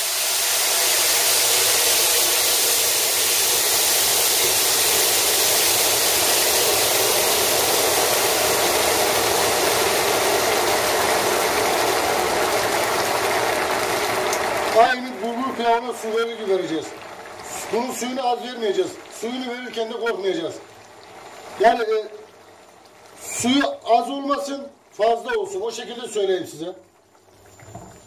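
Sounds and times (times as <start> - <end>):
water sizzling in a hot pan: 0.0 - 23.8.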